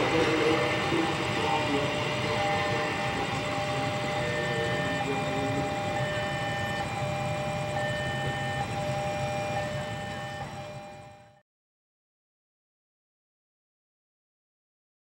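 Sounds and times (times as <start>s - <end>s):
high electronic warning tones: 0.0s - 11.4s.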